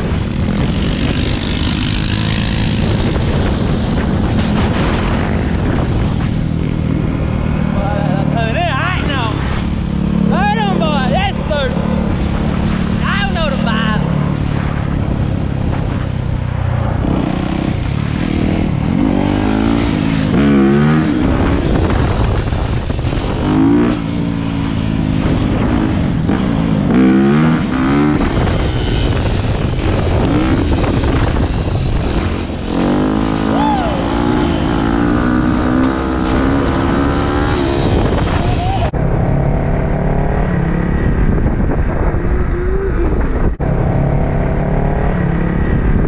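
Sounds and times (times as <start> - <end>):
dirt bike engine revving: 0.0 - 39.0.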